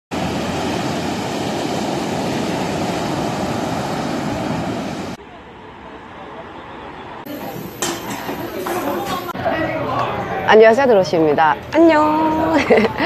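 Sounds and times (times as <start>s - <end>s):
ocean surf breaking: 0.1s - 5.2s.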